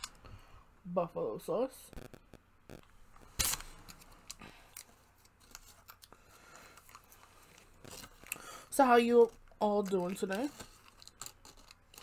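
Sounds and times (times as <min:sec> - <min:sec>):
plastic cup crinkling and clicking: 0:09.3 - 0:12.0.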